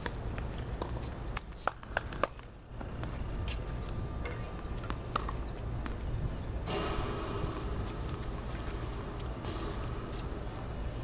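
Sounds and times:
steady low rumble: 2.5 - 11.0.

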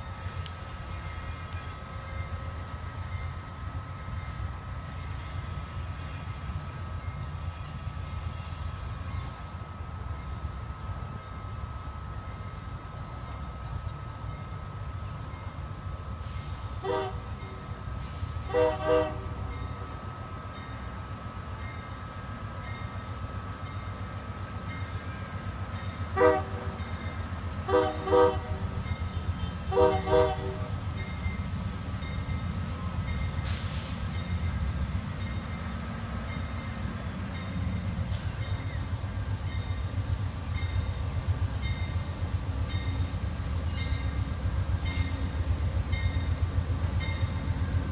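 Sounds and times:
low train rumble: 0.0 - 47.9
train horn blasts: 16.8 - 17.8, 18.4 - 20.2, 26.1 - 31.0.

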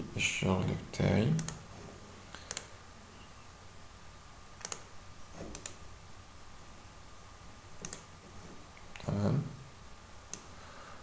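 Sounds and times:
faint room noise: 0.0 - 11.0
computer mouse clicks: 1.4 - 1.6, 2.4 - 2.7, 4.6 - 5.8, 7.8 - 8.1, 10.3 - 10.5.

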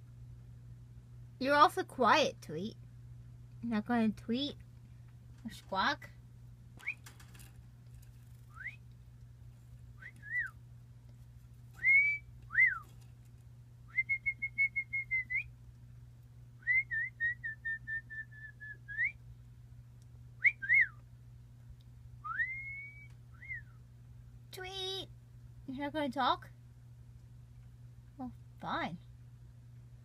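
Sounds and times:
person whistling: 11.8 - 12.8, 22.3 - 23.8.

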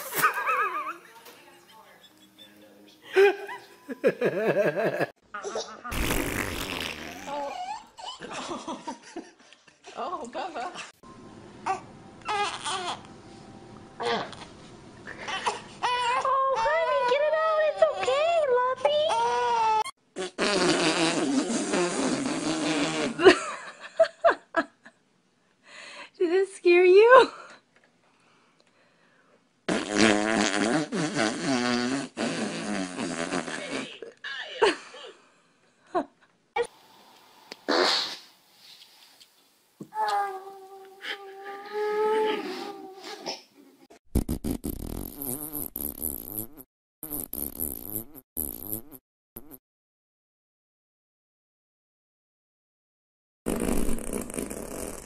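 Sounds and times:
long wavering fart: 5.9 - 7.4, 20.2 - 23.2, 29.7 - 33.9, 44.1 - 49.6, 53.5 - 55.0.

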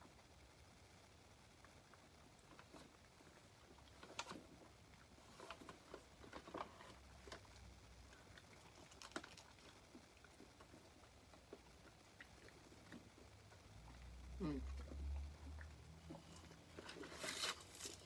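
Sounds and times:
dog chewing and licking: 1.6 - 17.3
person chewing: 3.6 - 18.0
paper crinkling: 16.8 - 18.0.

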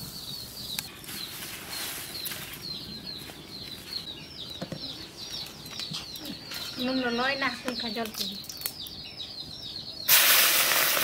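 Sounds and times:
small birds chirping: 0.0 - 11.0
oil sizzling in a wok: 10.1 - 11.0.

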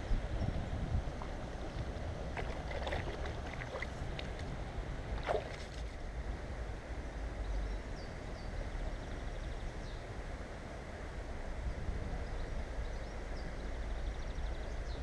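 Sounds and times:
water noise: 0.0 - 7.4
wind rumbling on microphone: 0.0 - 15.0.

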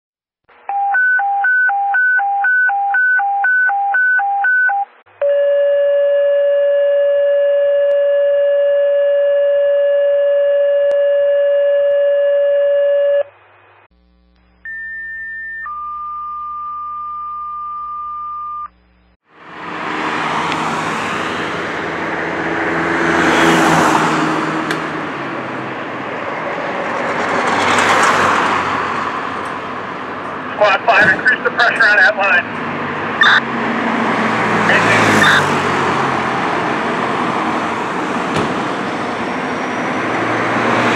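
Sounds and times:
low hum: 13.3 - 19.2
radio alerting tones: 14.0 - 19.2, 30.5 - 32.5, 33.2 - 33.5, 34.6 - 35.5
loud rushing noise: 19.3 - 40.9.

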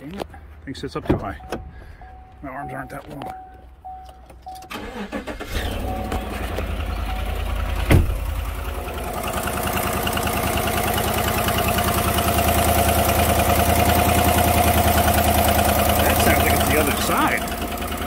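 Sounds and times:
engine idling: 4.7 - 18.0
loud thump: 7.8 - 8.2.

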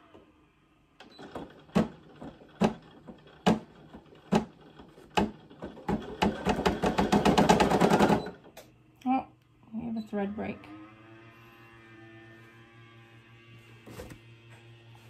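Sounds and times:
embroidery machine stitching: 1.0 - 8.5.

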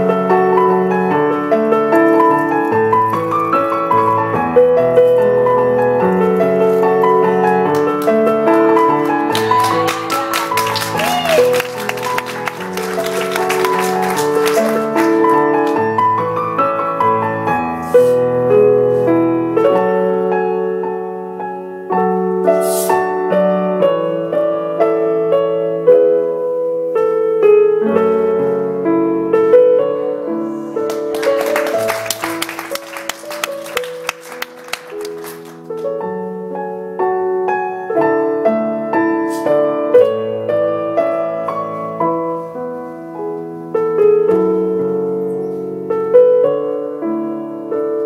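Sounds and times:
piano music: 0.0 - 48.0
audience clapping: 7.7 - 16.0, 30.8 - 35.9.

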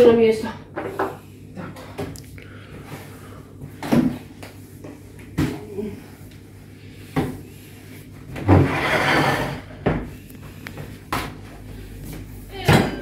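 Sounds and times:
chair scraping on wooden floor: 8.4 - 9.8.

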